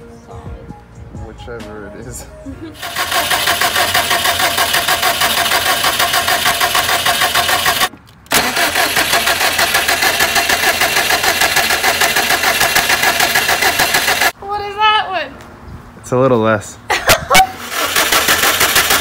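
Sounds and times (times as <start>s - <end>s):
engine cranking without firing: 2.8s - 14.4s, 17.6s - 19.0s.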